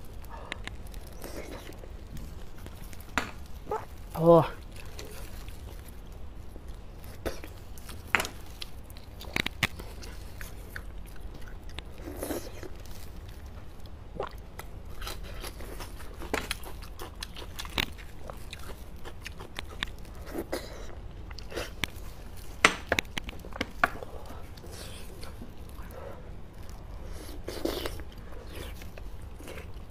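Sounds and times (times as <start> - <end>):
wet chewing and mouth sounds: 0.0 - 29.9
sharp clicks and smacks: 8.0 - 9.9, 17.5 - 18.0, 19.4 - 20.0, 22.6 - 24.0.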